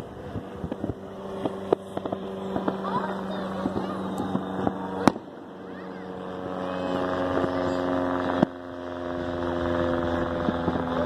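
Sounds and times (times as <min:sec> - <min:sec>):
propeller plane droning overhead: 0:00.0 - 0:11.0.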